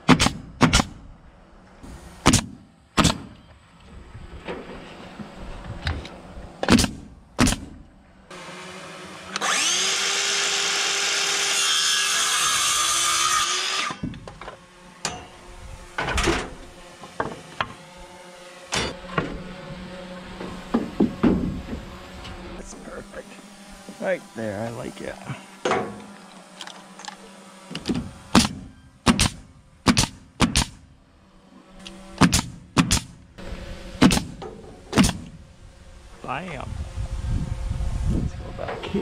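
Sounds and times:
power saw cutting wood: 8.3s - 29.3s, 30.5s - 39.0s.

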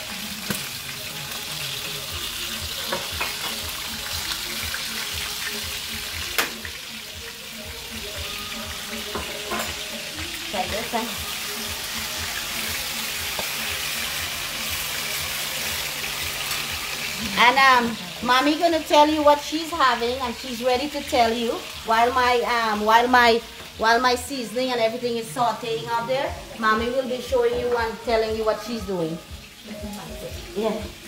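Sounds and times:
onion sizzling in hot oil: 0.0s - 31.0s
metal utensil clicking on pan: 2.9s - 3.6s, 6.4s - 6.7s.

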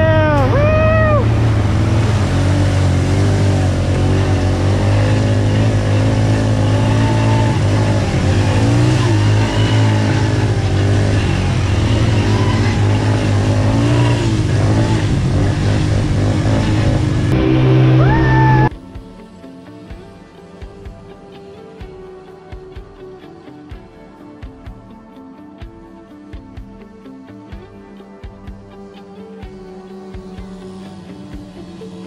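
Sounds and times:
atv engine revving: 0.0s - 18.7s.

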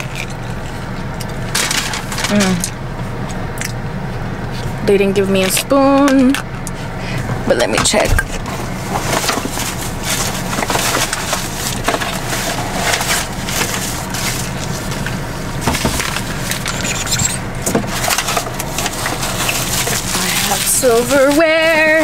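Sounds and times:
low hum in car: 0.0s - 22.0s
plastic packets crinkling: 1.5s - 2.7s, 9.0s - 15.2s, 15.8s - 22.0s.

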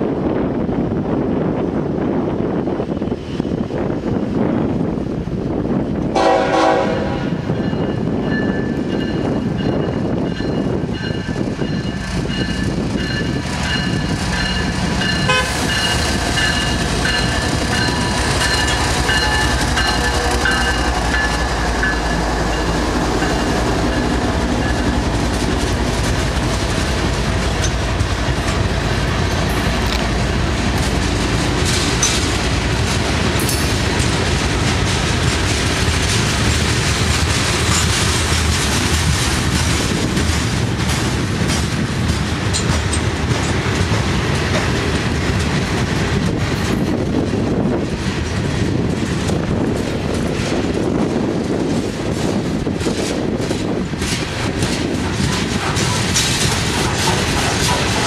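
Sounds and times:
diesel locomotive horn toot: 6.1s - 7.5s, 15.2s - 15.8s
train wheels clacking on rail joints: 6.2s - 58.0s.

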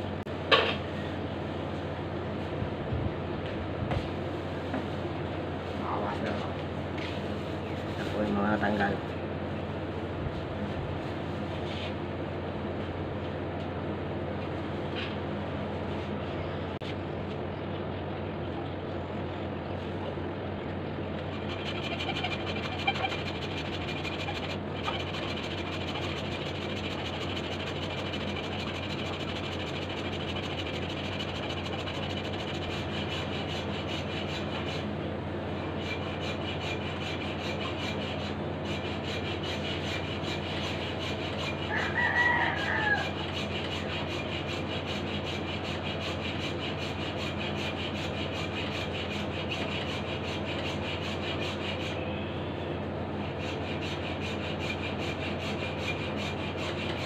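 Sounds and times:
hacksaw cutting: 21.3s - 34.9s, 35.7s - 52.0s, 53.2s - 57.0s
rooster crowing: 41.6s - 43.4s.

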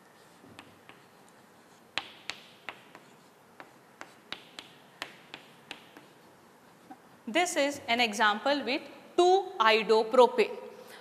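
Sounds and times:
chalk tapping on chalkboard: 0.0s - 7.0s.

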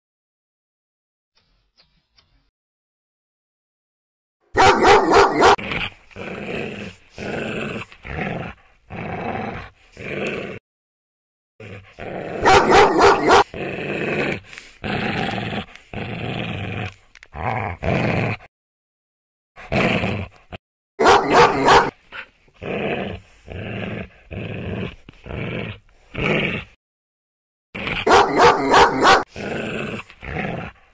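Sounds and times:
dog barking: 4.5s - 5.6s, 12.4s - 13.5s, 21.0s - 22.0s, 28.0s - 29.3s.

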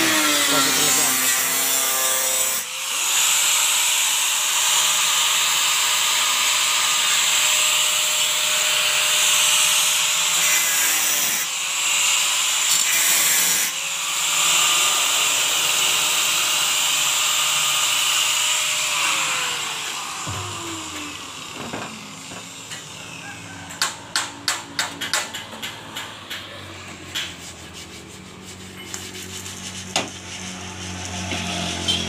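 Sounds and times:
angle grinder grinding metal: 0.0s - 24.7s
grinder spinning down: 4.4s - 24.1s.

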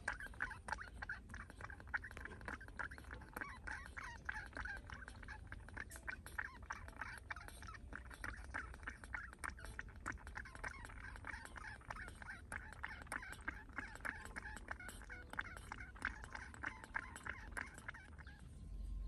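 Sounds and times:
baby monkey squeaking: 0.0s - 18.5s.

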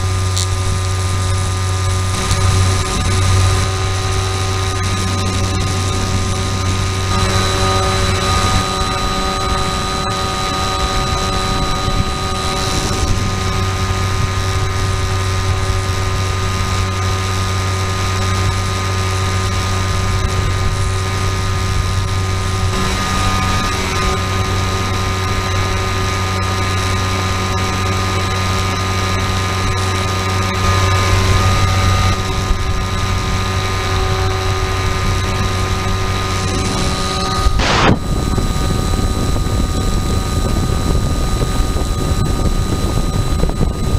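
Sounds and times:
wind rush: 0.0s - 28.1s, 30.6s - 43.9s
model aircraft motor whine: 0.0s - 43.9s.

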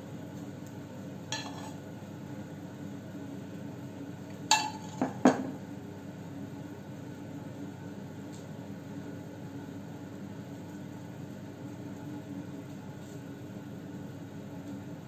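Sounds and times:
low background hum: 0.0s - 15.0s
utensil clinking on a plate: 1.4s - 1.8s, 4.5s - 5.5s.

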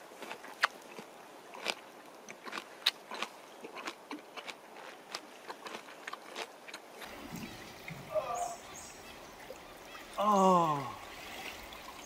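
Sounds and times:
crunchy melon chewing: 0.0s - 7.1s.

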